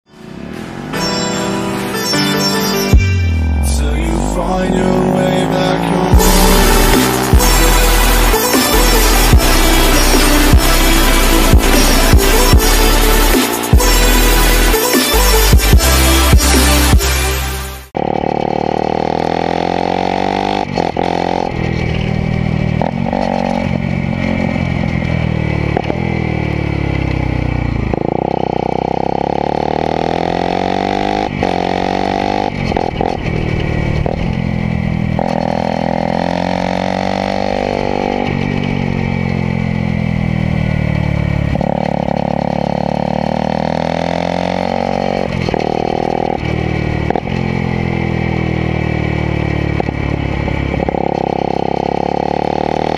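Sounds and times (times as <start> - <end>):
motorcycle engine revving: 2.9 - 52.9.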